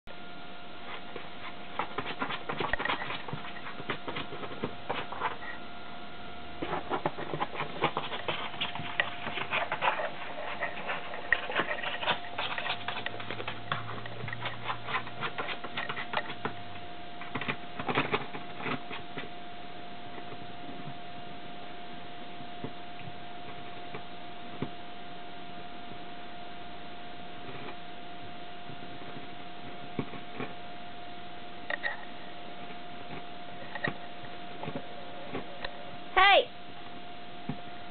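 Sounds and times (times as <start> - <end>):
faint steady hum: 0.1 - 37.9
puppy scratching cardboard box: 0.8 - 5.6, 6.6 - 19.4.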